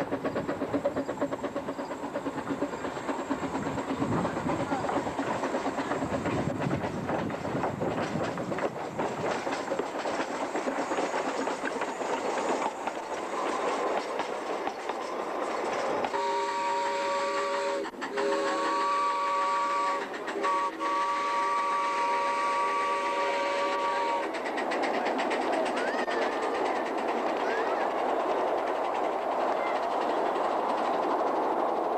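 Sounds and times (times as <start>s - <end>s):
train wheels clattering on track: 0.0s - 31.9s
train whistle chord: 16.1s - 24.2s.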